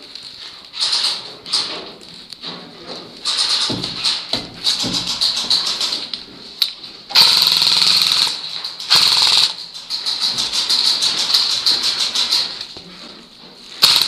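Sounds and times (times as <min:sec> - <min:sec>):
airsoft guns firing full auto: 0:07.1 - 0:12.3, 0:13.8 - 0:14.0.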